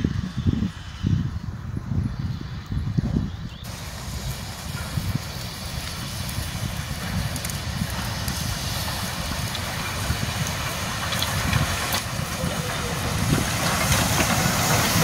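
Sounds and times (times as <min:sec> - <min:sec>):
steam locomotive rumble and hiss: 0:00.0 - 0:15.0.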